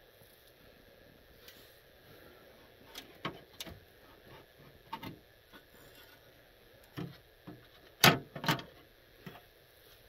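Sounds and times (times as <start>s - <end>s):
faint handling clicks and knocks: 2.8s - 9.5s.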